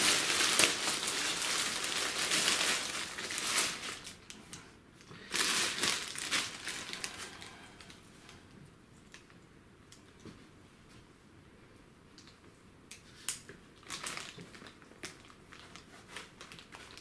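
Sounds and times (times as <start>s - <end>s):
plastic bag crinkling: 0.0s - 4.4s, 5.2s - 8.0s, 13.8s - 17.0s.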